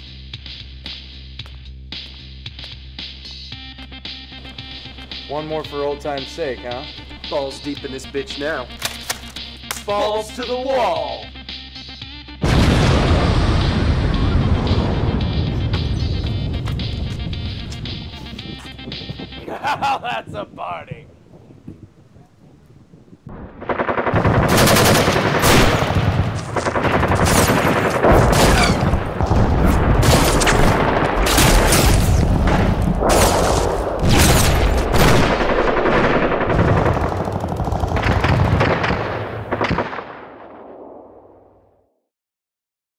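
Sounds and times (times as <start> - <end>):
automatic machine-gun fire: 23.6 - 40.5.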